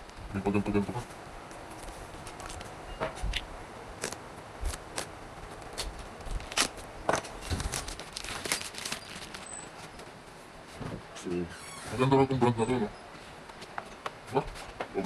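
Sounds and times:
box packaging crinkling and rustling: 0:04.0 - 0:10.0.

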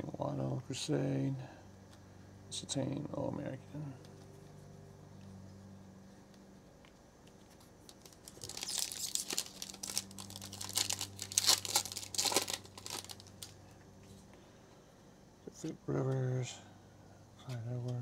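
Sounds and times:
foil wrapper crinkling: 0:07.4 - 0:13.6.

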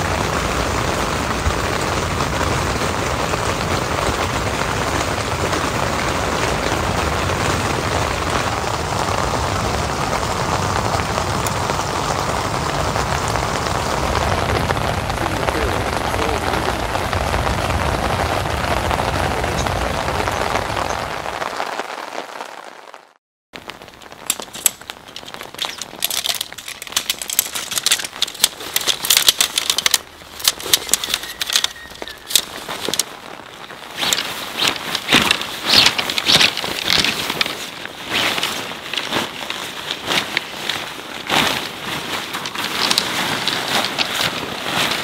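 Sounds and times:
heavy rain: 0:00.0 - 0:45.0
crackling of sharp ticks: 0:23.7 - 0:33.2, 0:33.9 - 0:37.6.

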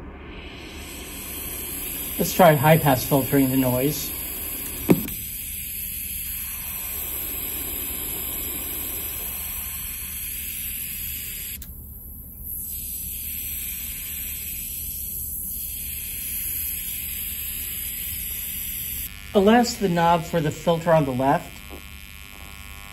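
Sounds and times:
filtered noise hiss: 0:01.8 - 0:05.2.

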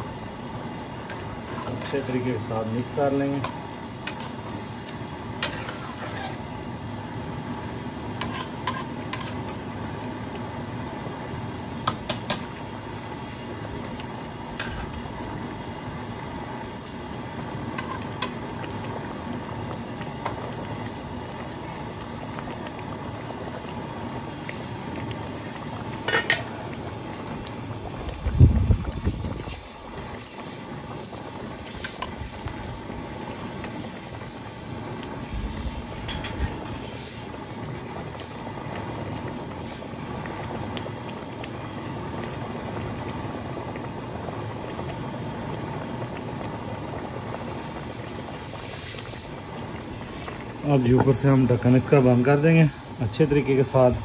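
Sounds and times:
steady hiss: 0:00.0 - 0:54.0
spatula scraping a metal pot: 0:05.4 - 0:06.4, 0:08.2 - 0:09.5.

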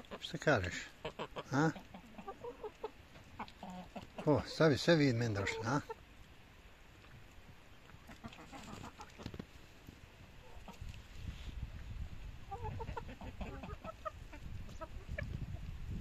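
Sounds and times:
hens clucking: 0:00.0 - 0:06.1, 0:07.8 - 0:09.4, 0:10.4 - 0:11.0, 0:12.4 - 0:15.7.

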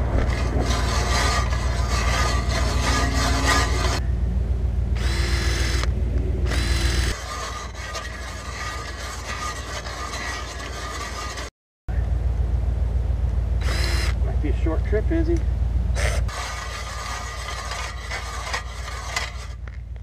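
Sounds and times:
ice auger blades scraping ice: 0:00.0 - 0:04.0, 0:07.1 - 0:11.5, 0:16.0 - 0:19.7
cordless drill motor whining: 0:05.0 - 0:05.9, 0:06.5 - 0:11.4, 0:13.6 - 0:14.2, 0:16.0 - 0:19.6.

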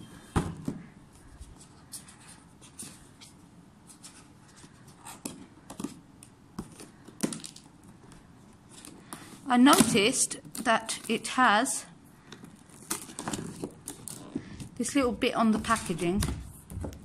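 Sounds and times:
cardboard boxes being handled: 0:12.3 - 0:17.0.

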